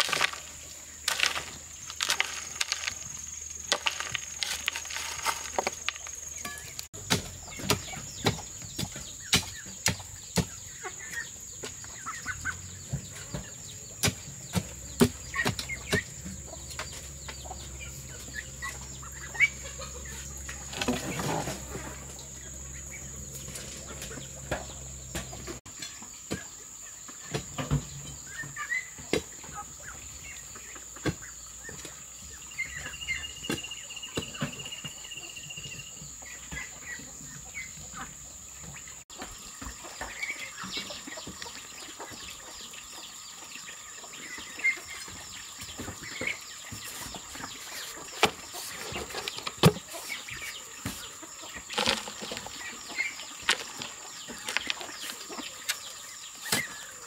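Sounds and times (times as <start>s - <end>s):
digging tool scraping soil: 0.0s - 10.6s, 20.0s - 22.2s, 46.7s - 55.3s
hens clucking: 0.0s - 25.6s, 34.2s - 57.0s.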